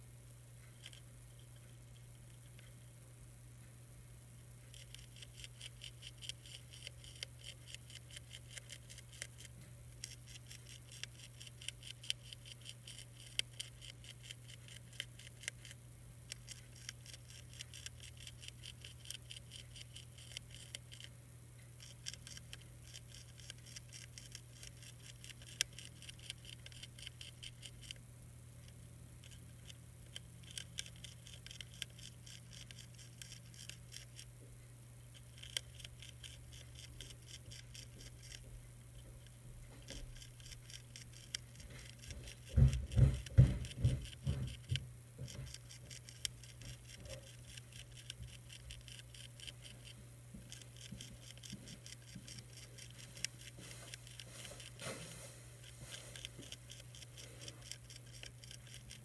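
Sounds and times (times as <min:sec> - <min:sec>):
steady low hum: 0:00.0 - 0:59.0
caterpillar chewing leaf clicks: 0:04.7 - 0:21.1, 0:21.8 - 0:28.0, 0:28.6 - 0:34.3, 0:35.1 - 0:54.9, 0:55.6 - 0:59.0.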